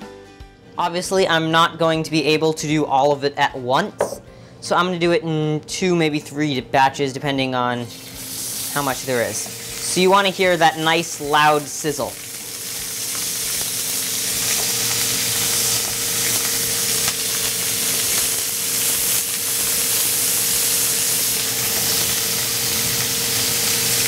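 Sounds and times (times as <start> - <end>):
chicken sizzling in a grill pan: 7.8 - 24.0.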